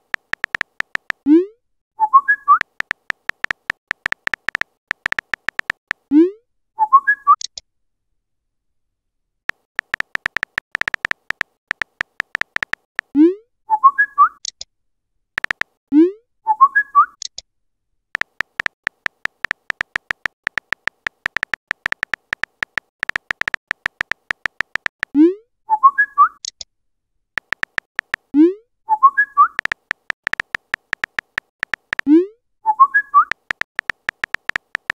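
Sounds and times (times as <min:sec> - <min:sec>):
phone keyboard tap clicks: 0:00.0 - 0:01.2, 0:02.6 - 0:06.0, 0:09.8 - 0:13.1, 0:15.4 - 0:15.7, 0:18.2 - 0:25.2, 0:27.4 - 0:28.3, 0:29.6 - 0:32.1, 0:33.3 - 0:34.9.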